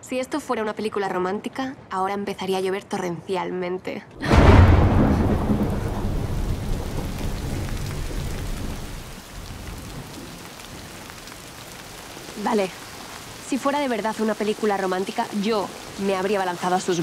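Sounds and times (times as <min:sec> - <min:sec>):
thunder rumbling: 0:04.2 - 0:11.4
heavy rain on pavement: 0:04.2 - 0:17.0.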